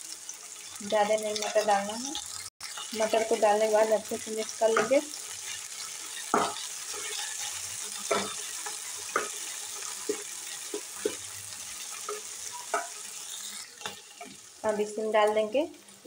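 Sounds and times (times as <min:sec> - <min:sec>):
vegetables sizzling in hot oil: 0:00.0 - 0:16.0
spatula scraping and tapping pan: 0:04.7 - 0:13.1.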